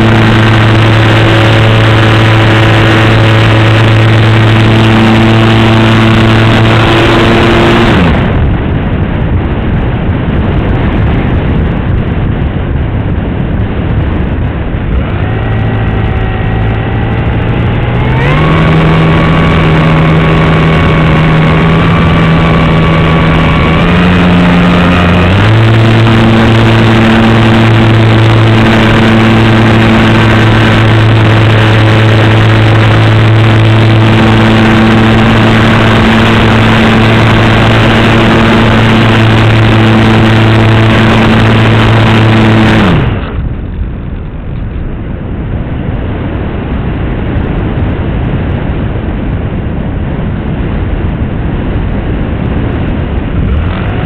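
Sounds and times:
model airplane propeller motor: 0.0s - 8.4s, 14.8s - 43.4s, 53.4s - 54.0s
wind noise: 0.0s - 54.0s.

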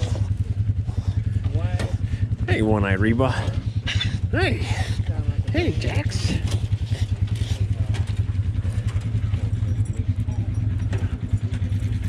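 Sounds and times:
atv engine idling: 0.0s - 12.0s.

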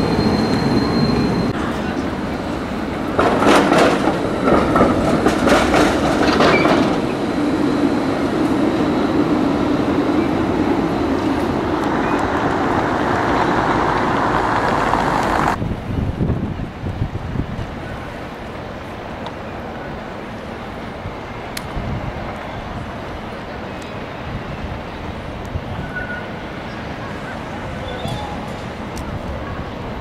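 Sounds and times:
tram wheels clacking over rail joints: 0.0s - 15.6s
tram running rumble: 0.0s - 30.0s.

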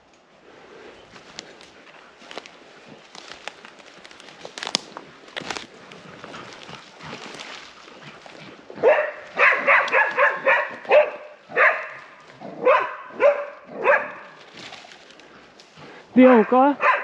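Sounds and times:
dog barking: 8.8s - 14.4s, 16.3s - 17.0s.

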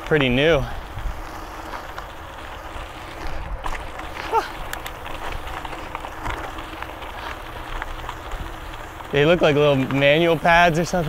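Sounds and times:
bike tyre and frame noise: 0.0s - 11.0s
faint rattles: 0.0s - 11.0s
wind rumbling on microphone: 0.0s - 11.0s.

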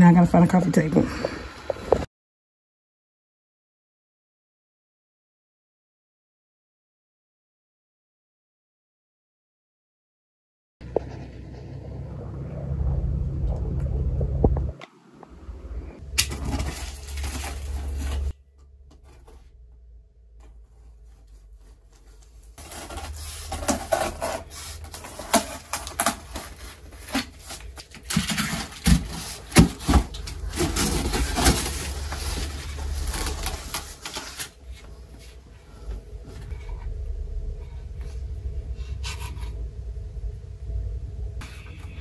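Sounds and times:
cardboard scraping and rubbing: 16.3s - 18.4s, 20.7s - 35.4s.

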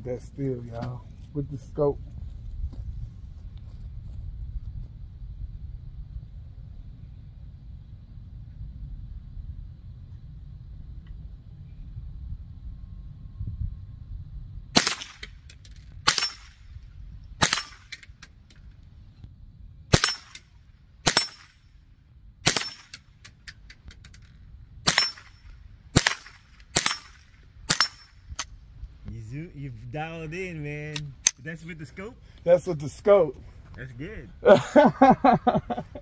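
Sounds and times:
rifle shots: 14.7s - 16.7s, 17.4s - 18.0s, 19.9s - 21.6s, 22.4s - 23.1s, 24.8s - 28.5s.

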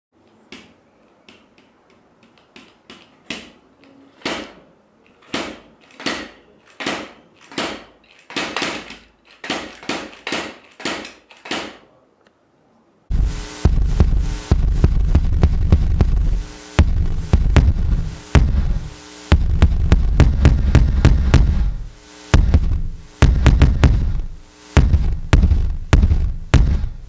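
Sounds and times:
bass drum pedal knocking pad: 13.1s - 27.0s.

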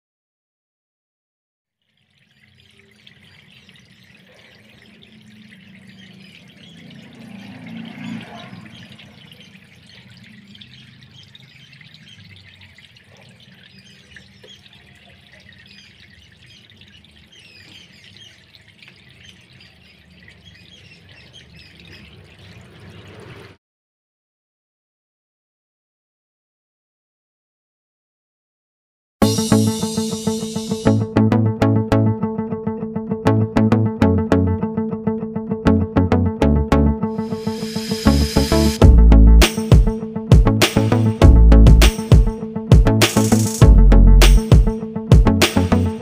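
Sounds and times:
water trickling and splashing: 1.7s - 23.6s, 41.8s - 43.7s.

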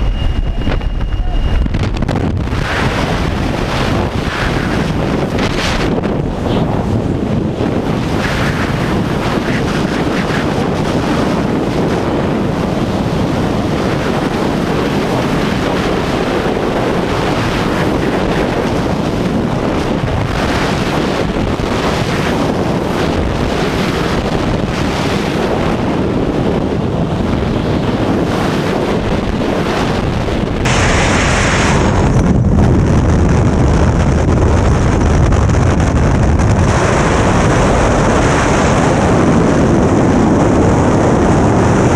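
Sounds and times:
wind roaring over microphone: 0.0s - 41.9s.

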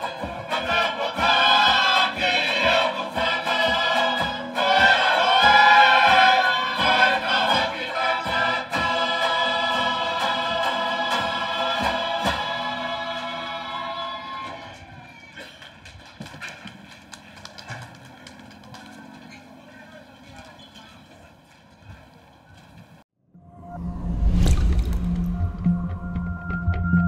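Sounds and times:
string band with banjo strumming: 0.0s - 13.8s
group singing: 0.0s - 14.5s.

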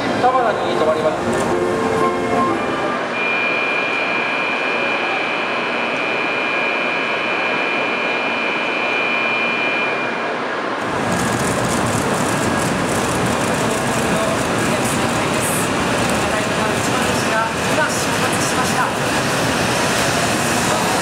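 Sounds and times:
train rushing noise: 0.0s - 21.0s
high electronic warning tone: 3.1s - 10.3s.

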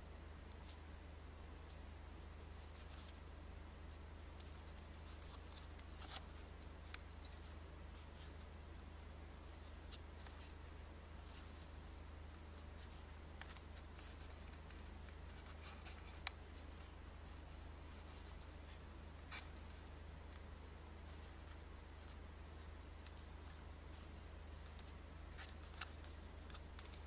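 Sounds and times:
paper banknote crinkling: 19.3s - 27.0s.

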